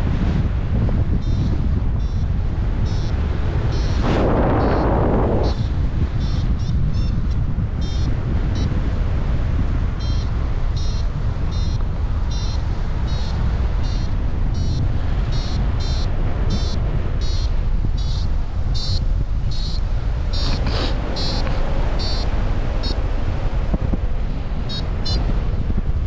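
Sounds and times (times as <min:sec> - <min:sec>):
airflow rushing over microphone: 0:00.0 - 0:08.4, 0:16.3 - 0:26.0
variometer high beeps: 0:01.1 - 0:08.8, 0:10.0 - 0:23.0, 0:24.6 - 0:25.3.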